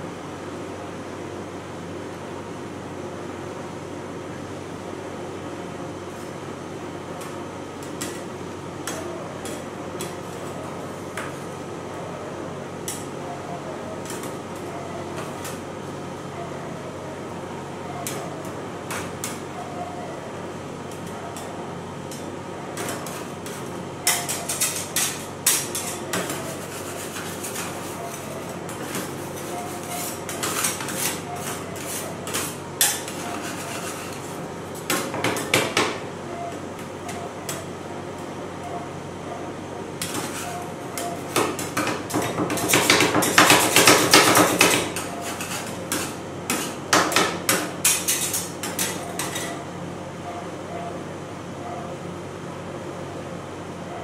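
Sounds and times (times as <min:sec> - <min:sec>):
steady machine hum: 0:00.0 - 0:54.0
metal scrapers clacking on steel plate: 0:40.0 - 0:49.6.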